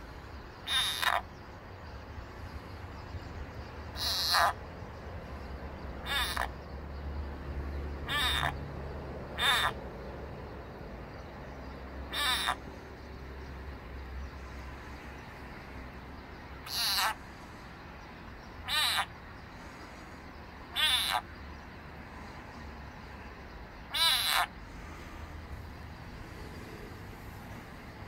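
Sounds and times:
frog distress screams: 0:00.6 - 0:01.2, 0:04.0 - 0:04.6, 0:06.0 - 0:06.5, 0:08.1 - 0:08.6, 0:09.4 - 0:09.8, 0:12.1 - 0:12.6, 0:16.6 - 0:17.2, 0:18.6 - 0:19.1, 0:20.7 - 0:21.3, 0:23.9 - 0:24.5.

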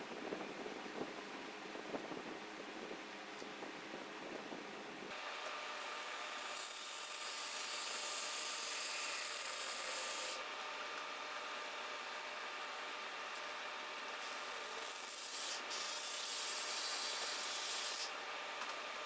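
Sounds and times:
reciprocating saw cutting metal: 0:05.1 - 0:10.5, 0:14.2 - 0:18.2.

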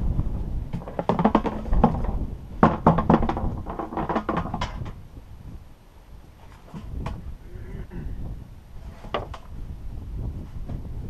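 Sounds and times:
plastic fuel tank knocking: 0:00.7 - 0:05.0.

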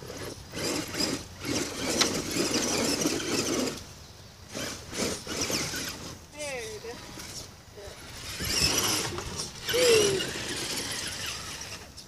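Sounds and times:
toy truck electric motor whirring: 0:00.0 - 0:03.9, 0:04.5 - 0:12.0.

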